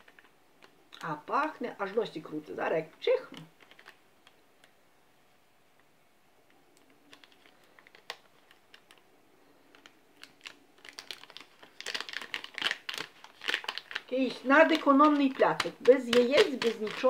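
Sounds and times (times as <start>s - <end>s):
sachet crinkling in hands: 0.0s - 4.8s, 6.6s - 17.0s.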